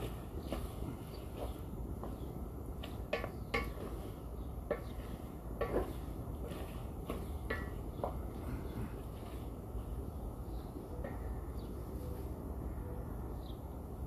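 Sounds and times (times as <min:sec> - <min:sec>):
spatula scraping and knocking pan: 0:04.7 - 0:07.8.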